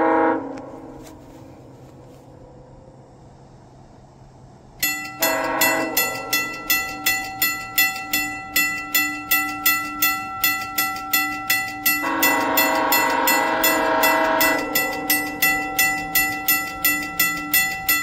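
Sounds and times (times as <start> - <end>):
train horn chord: 0.0 - 3.0, 4.8 - 8.3, 11.0 - 18.0
level crossing bell ringing: 4.8 - 18.0.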